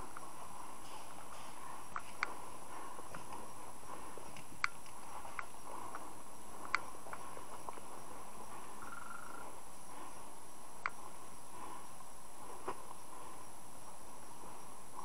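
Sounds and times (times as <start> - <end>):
outdoor background hiss: 0.0 - 15.0
high insect-like buzz: 8.8 - 9.6.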